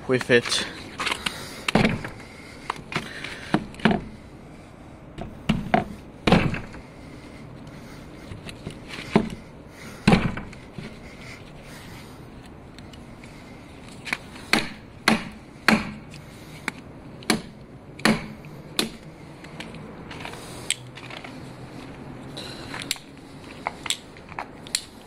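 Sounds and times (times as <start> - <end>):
knife striking wooden plank: 14.5 - 16.0, 17.3 - 19.0.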